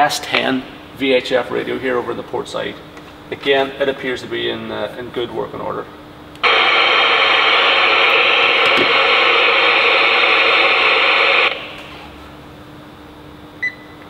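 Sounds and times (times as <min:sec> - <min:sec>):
radio static hiss: 0:06.4 - 0:12.2.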